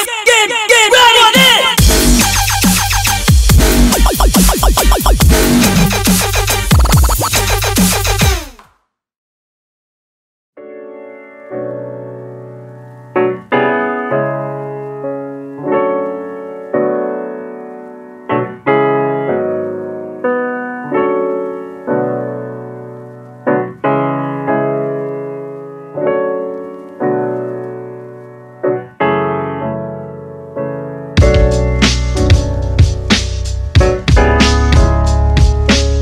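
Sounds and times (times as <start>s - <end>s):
slow piano chords: 10.6s - 36.0s.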